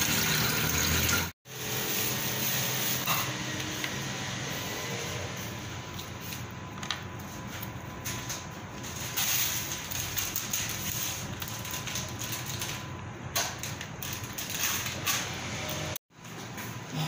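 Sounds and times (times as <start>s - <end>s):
plastic bag rustling: 8.8s - 12.9s.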